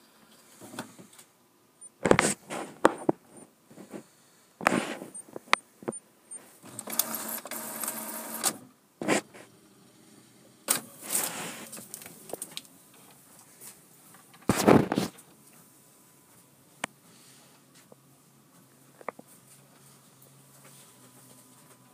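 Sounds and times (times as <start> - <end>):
inkjet printer clunks and whirs: 6.7 - 8.6.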